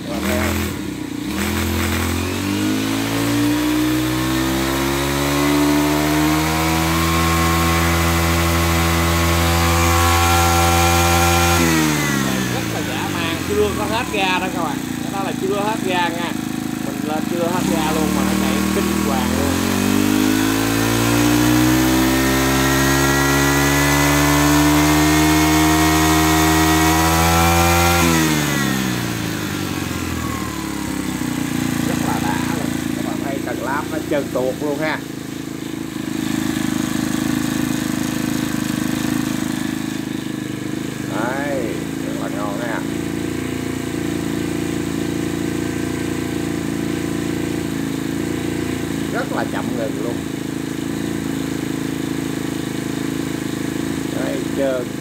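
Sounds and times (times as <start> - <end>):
brush cutter engine revving: 0.0 - 55.0.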